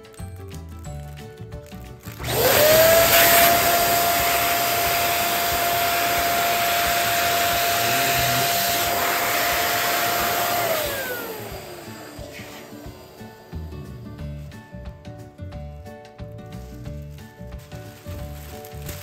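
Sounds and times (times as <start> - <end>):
balloon pump motor whine: 2.0 - 14.3
rush of air: 12.0 - 13.5.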